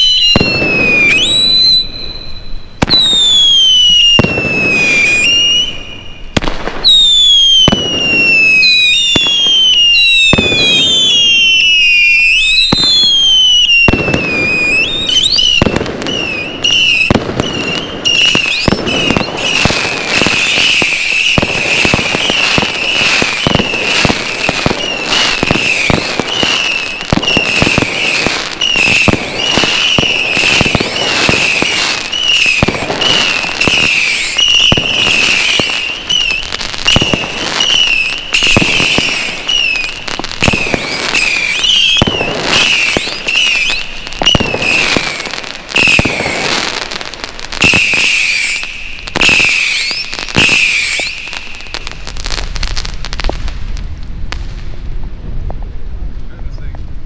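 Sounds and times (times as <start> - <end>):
firecrackers banging and crackling: 0.0 - 1.9, 2.8 - 57.0
firework whistlers: 0.0 - 53.3.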